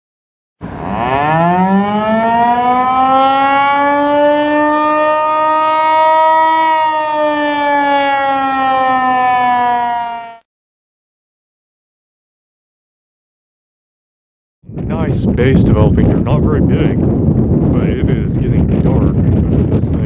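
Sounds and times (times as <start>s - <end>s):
warning siren wailing: 0.6s - 10.5s.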